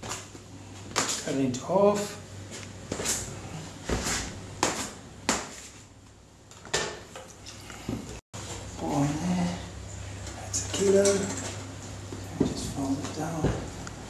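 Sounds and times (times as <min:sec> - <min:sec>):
dough being chopped on table: 0:04.6 - 0:05.6.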